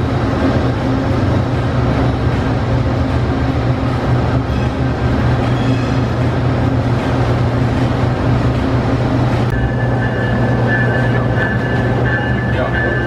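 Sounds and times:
locomotive engine drone: 0:00.0 - 0:13.0
thin high whine: 0:09.5 - 0:13.0.

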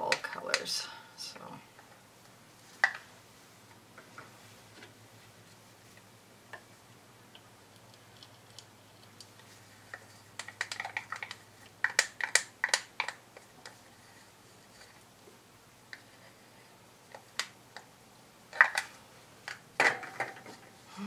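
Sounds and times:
plastic cups clicking: 0:09.9 - 0:13.8.

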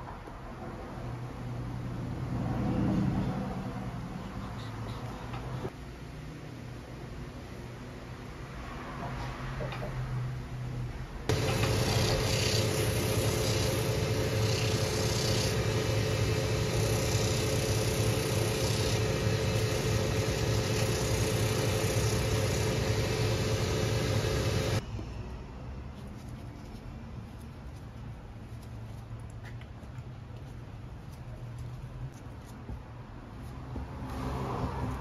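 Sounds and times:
machine motor hum: 0:11.3 - 0:24.8
sole edge sanding on wheel: 0:11.3 - 0:24.8.

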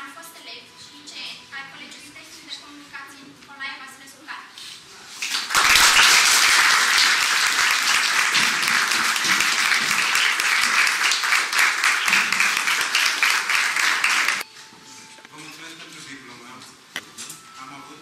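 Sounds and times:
crowd applauding: 0:05.2 - 0:14.4.

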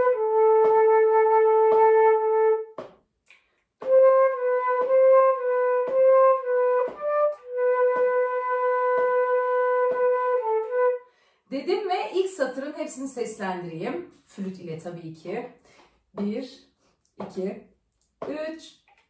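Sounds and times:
flute playing slow melody: 0:00.0 - 0:02.7, 0:03.8 - 0:11.0
faint beat taps: 0:00.0 - 0:10.9, 0:15.8 - 0:16.5, 0:17.1 - 0:19.0.

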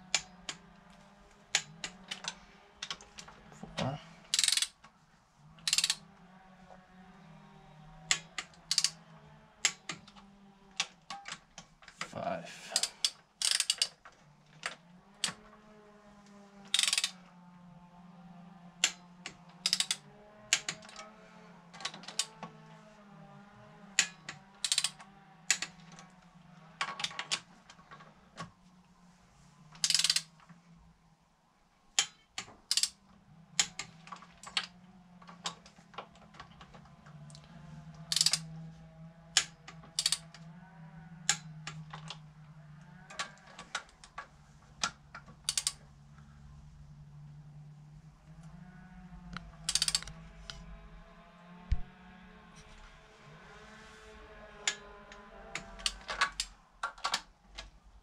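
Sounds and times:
ratchet wrench clicking: 0:04.3 - 0:04.8, 0:05.6 - 0:06.0, 0:08.1 - 0:09.0, 0:12.8 - 0:13.9, 0:16.7 - 0:17.2, 0:19.6 - 0:21.1, 0:24.0 - 0:25.7, 0:29.8 - 0:30.3, 0:32.0 - 0:33.0, 0:38.1 - 0:38.4, 0:39.4 - 0:40.3, 0:45.4 - 0:45.8, 0:49.7 - 0:50.6.

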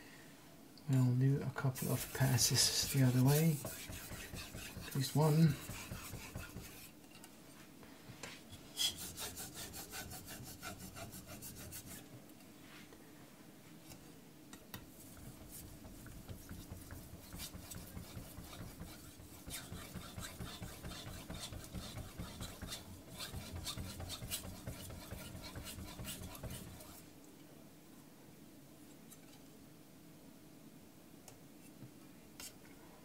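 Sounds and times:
knife blade scraping on whetstone: 0:01.8 - 0:06.9, 0:08.7 - 0:12.0, 0:17.3 - 0:27.0.

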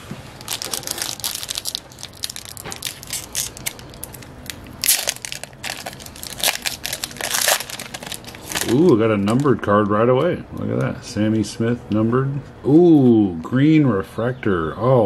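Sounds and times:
foil wrapper crinkling and tearing: 0:00.4 - 0:09.5.

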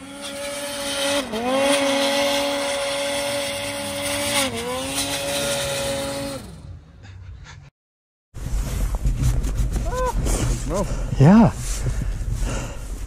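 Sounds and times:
snowmobile engine at high revs: 0:00.0 - 0:06.8.

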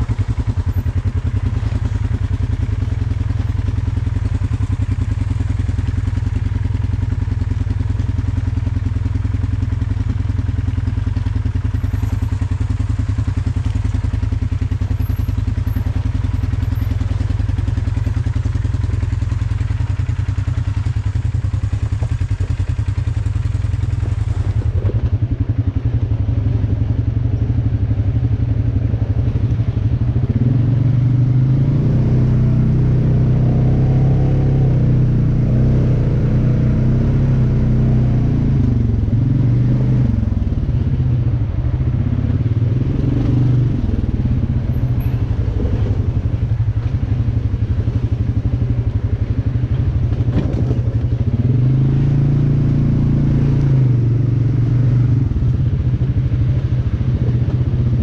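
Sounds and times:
off-road vehicle engine revving: 0:30.2 - 0:48.7, 0:49.6 - 0:58.0.

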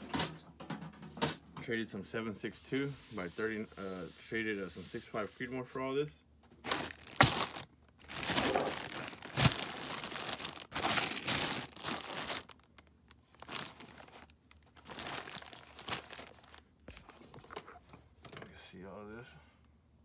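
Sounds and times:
handling cardboard boxes: 0:06.6 - 0:12.7, 0:13.3 - 0:17.8
plastic bag crinkling: 0:06.6 - 0:16.7.

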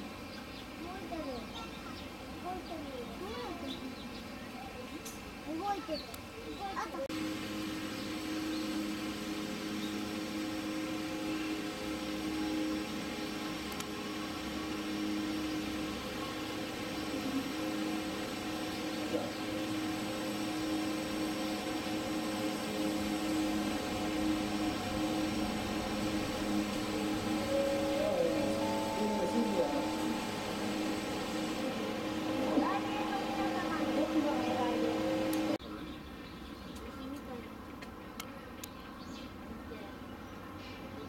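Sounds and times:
machine hum with low tones: 0:07.1 - 0:35.6.

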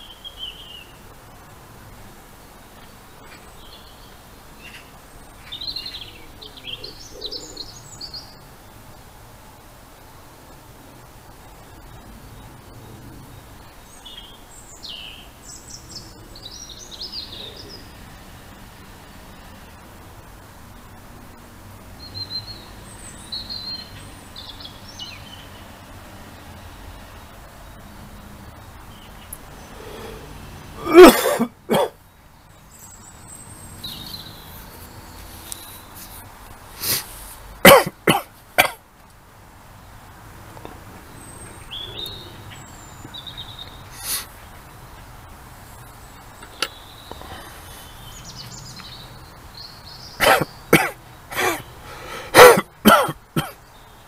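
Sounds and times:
low outdoor background noise: 0:00.0 - 0:54.0
songbird chirping: 0:00.0 - 0:54.0
person coughing: 0:30.8 - 0:32.0, 0:37.6 - 0:38.8, 0:50.2 - 0:51.6, 0:52.3 - 0:53.6.

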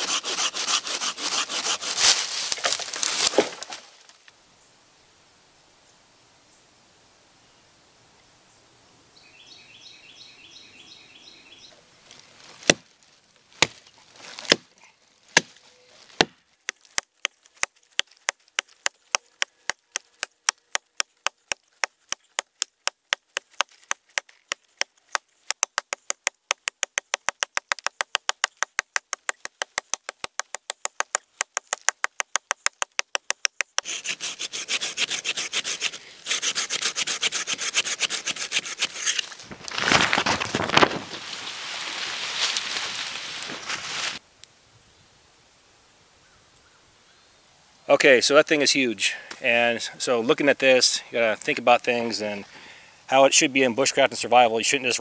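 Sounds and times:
hatchet chopping tree: 0:00.0 - 0:02.1, 0:12.6 - 0:12.9, 0:13.6 - 0:14.7, 0:15.3 - 0:39.3
scraping rasping sound: 0:00.0 - 0:03.3, 0:30.3 - 0:40.9.

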